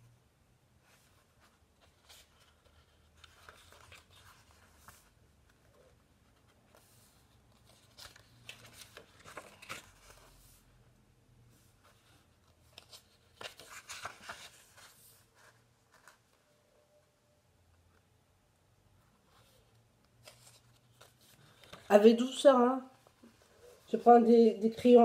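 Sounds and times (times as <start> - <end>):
paper pages rustling: 0.8 - 10.7, 11.7 - 16.4, 19.0 - 25.0.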